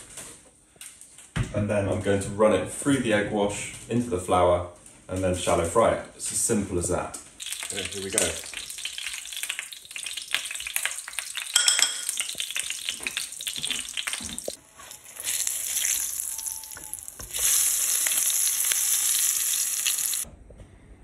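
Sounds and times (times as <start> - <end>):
frying in hot oil sizzling: 7.4 - 20.3.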